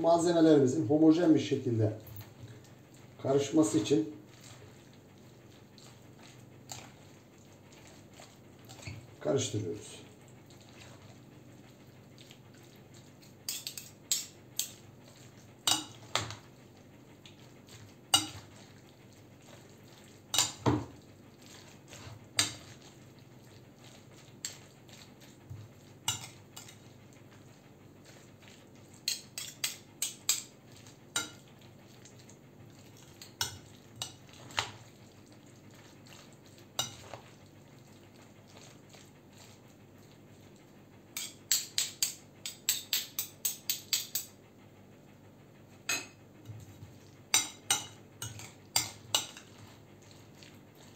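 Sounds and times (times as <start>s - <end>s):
utensils clinking on glass bowl: 18.2s - 18.5s, 36.8s - 37.2s.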